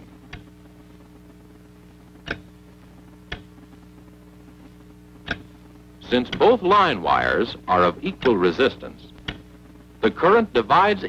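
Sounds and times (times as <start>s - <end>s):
steady low hum: 0.0s - 11.0s
telegraph key clicks: 5.3s - 5.5s, 9.2s - 9.5s.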